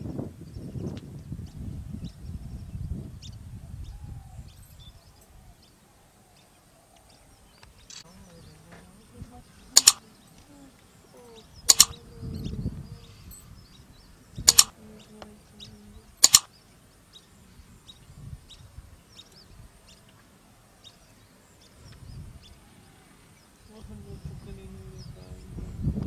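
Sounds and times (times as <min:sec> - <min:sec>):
small birds chirping: 0:00.0 - 0:26.0
sharp double clicks: 0:09.7 - 0:10.1, 0:11.6 - 0:12.0, 0:14.4 - 0:14.8, 0:16.2 - 0:16.5.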